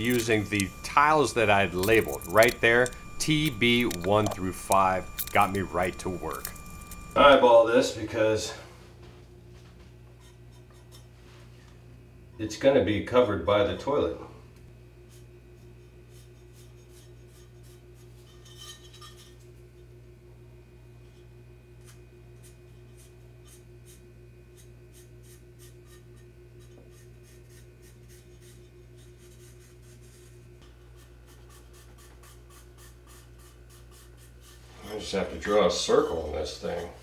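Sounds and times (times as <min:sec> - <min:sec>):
steady low hum: 0:00.0 - 0:37.0
marker scratching on ceramic tile: 0:24.6 - 0:35.0.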